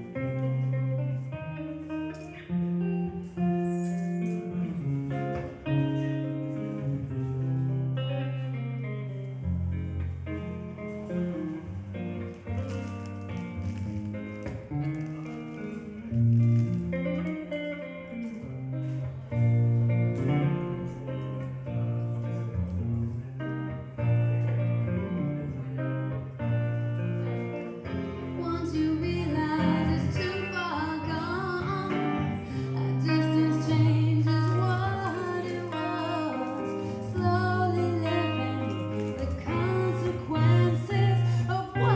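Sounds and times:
jazz guitar accompaniment: 0.0s - 41.9s
woman singing: 28.1s - 41.9s.

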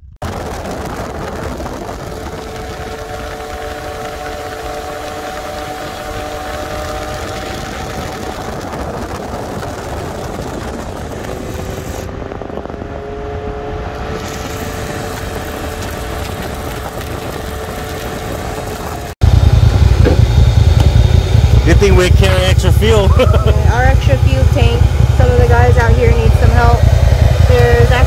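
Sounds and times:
vehicle engine running: 0.0s - 28.0s
wind noise: 0.0s - 28.0s
loud low rumble: 16.6s - 28.0s.

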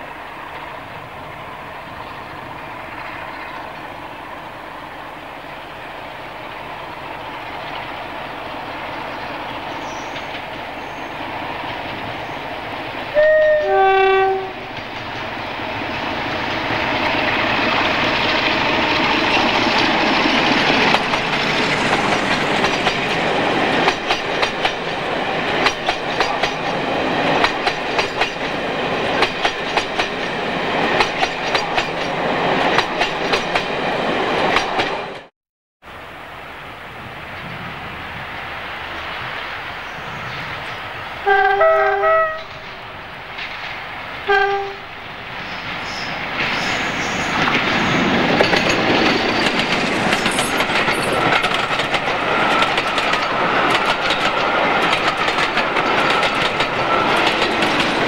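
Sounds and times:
diesel locomotive engine: 0.0s - 58.0s
train wheels clickety-clack: 7.2s - 35.3s, 42.2s - 58.0s
two-tone train horn: 13.1s - 14.7s, 41.2s - 42.6s, 44.3s - 44.9s.

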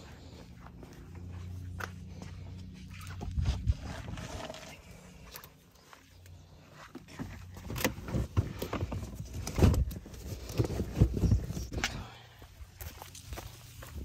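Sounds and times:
footsteps on pavement: 0.0s - 3.7s.

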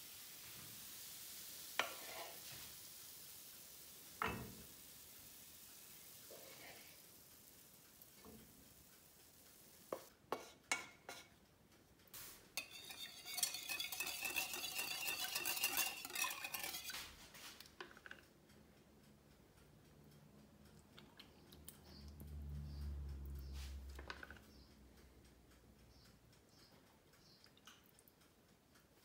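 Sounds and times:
whisk beating in glass dish: 12.6s - 17.2s.

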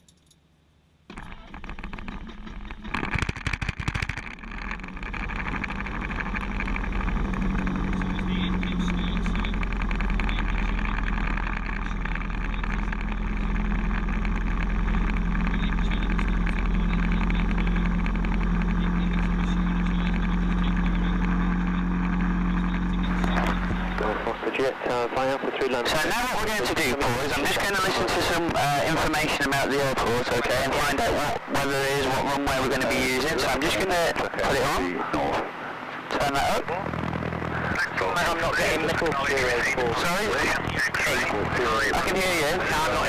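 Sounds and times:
aircraft piston engine starting: 25.8s - 43.0s.

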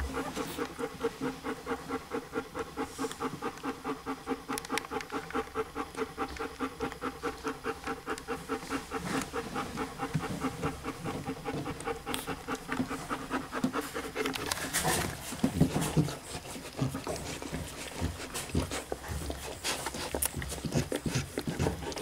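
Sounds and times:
dog panting fast: 0.0s - 22.0s.

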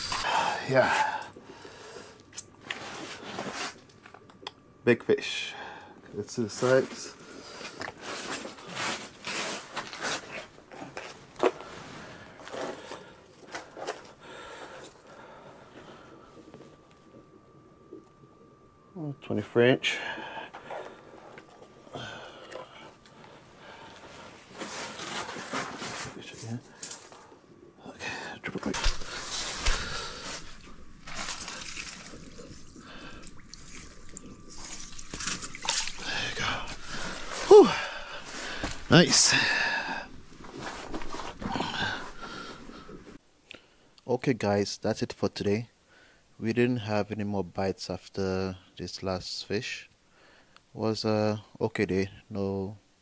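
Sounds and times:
fish being handled rustling: 22.8s - 27.4s, 28.7s - 39.0s
water sloshing and dripping: 28.7s - 38.9s.

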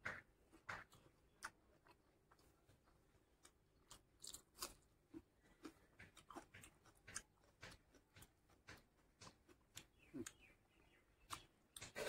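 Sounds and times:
person crunching raw onion: 1.3s - 8.8s.

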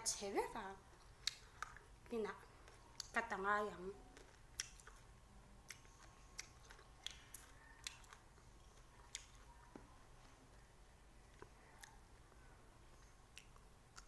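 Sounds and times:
clicks and crunches of eating limes: 0.9s - 1.9s, 2.6s - 3.2s, 4.1s - 9.8s, 11.3s - 12.0s, 13.0s - 14.0s.

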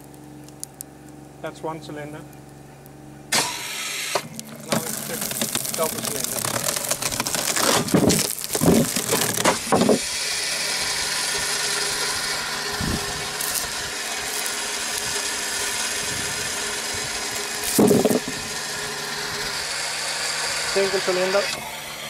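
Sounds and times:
wood cracking: 0.0s - 1.2s, 3.4s - 10.1s, 12.8s - 18.4s
pressure washer running: 3.3s - 22.0s
wood thud: 7.0s - 10.0s.

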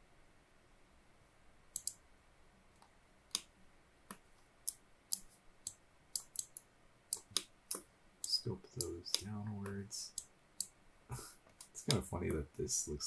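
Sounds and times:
computer mouse clicks: 1.8s - 2.0s, 2.8s - 3.5s, 4.1s - 10.7s.

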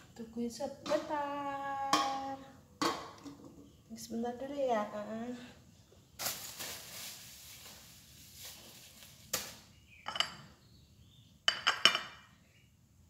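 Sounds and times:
dishes and utensils clinking: 10.1s - 10.5s, 11.5s - 12.3s.

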